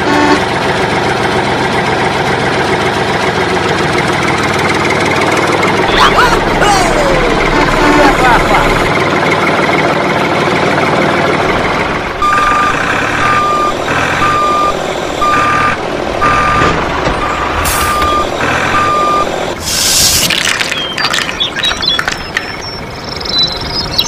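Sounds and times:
truck engine running: 0.0 - 24.0
reversing alarm beeping: 12.2 - 19.4
air brakes hissing: 17.6 - 18.1, 19.6 - 20.3.

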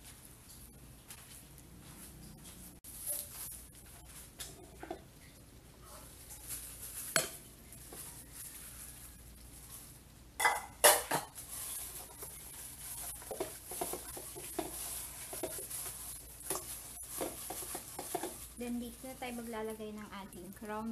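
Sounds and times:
hands mixing meat: 0.0 - 10.2, 10.8 - 20.9
dish clattering against metal bowl: 10.4 - 11.4, 16.5 - 18.4.

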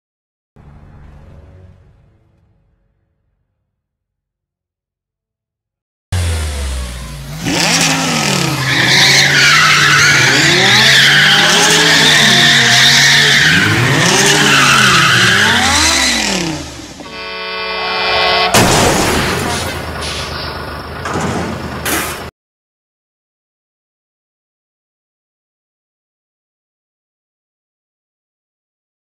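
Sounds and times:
car engine revving: 6.1 - 21.0
tyre squeal: 8.3 - 20.6
car horn blast: 14.9 - 20.1.

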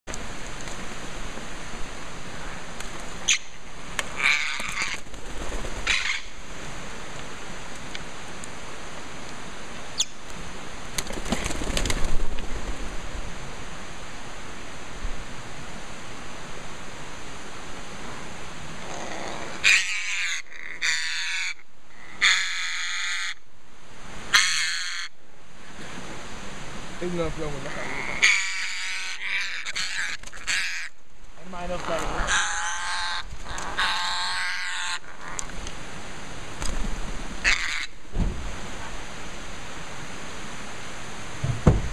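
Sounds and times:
forest ambience hiss: 0.1 - 41.9
parrots squawking harshly: 4.1 - 5.0, 5.8 - 6.3, 19.4 - 23.4, 24.3 - 25.1, 27.7 - 31.0, 31.8 - 35.5, 37.4 - 38.0
knock or rustle: 38.1 - 38.5, 41.4 - 41.9.

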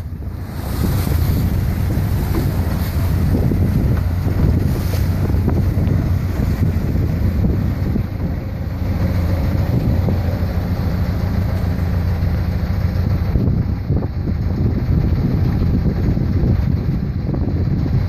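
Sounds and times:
boat engine droning: 0.0 - 18.0
water rushing: 0.0 - 18.0
wind buffeting microphone: 0.0 - 18.0.

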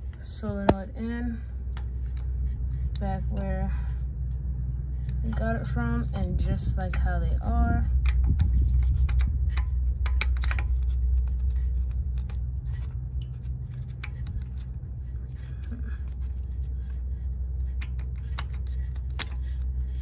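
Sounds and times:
steady low rumble: 0.0 - 20.0.

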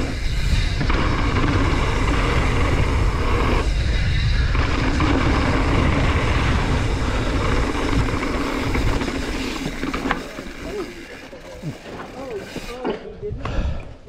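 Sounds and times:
wind buffeting microphone: 0.0 - 10.5
bike tyre rumble: 0.0 - 13.8.

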